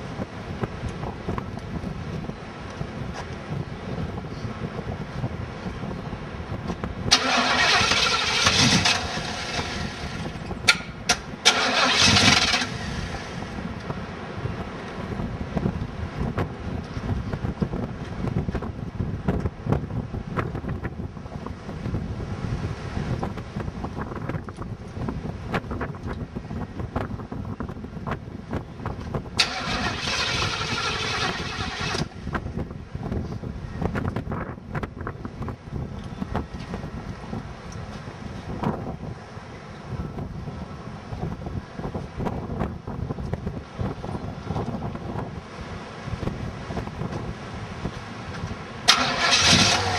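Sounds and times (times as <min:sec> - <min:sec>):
car engine rumbling: 0:00.0 - 0:49.9
starter cranking engine: 0:07.1 - 0:13.4, 0:29.4 - 0:32.1, 0:48.9 - 0:49.9.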